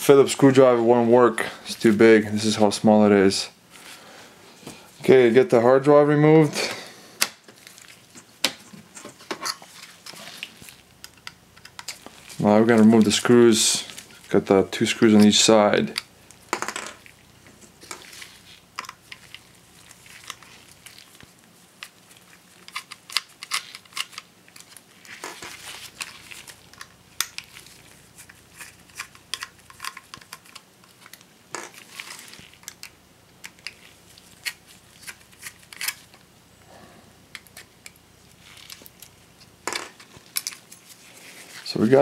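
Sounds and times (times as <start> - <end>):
handling rustle: 7.4 - 11.0, 11.7 - 36.3, 37.4 - 42.0.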